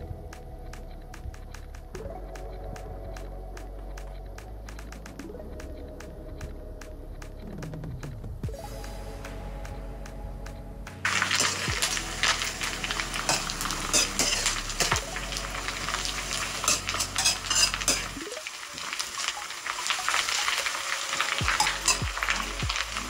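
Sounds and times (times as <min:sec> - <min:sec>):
fish sizzling in hot oil: 0:11.0 - 0:23.0
metal spatula scraping wok: 0:11.1 - 0:14.9, 0:15.8 - 0:18.2, 0:21.2 - 0:23.0.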